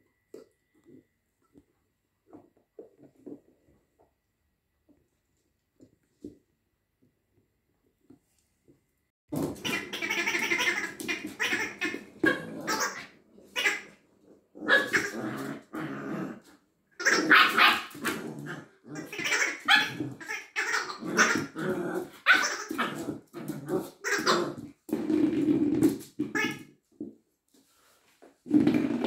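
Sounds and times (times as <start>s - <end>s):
puppy growling: 9.4s - 26.0s
puppy barking: 17.0s - 18.2s, 22.2s - 23.0s.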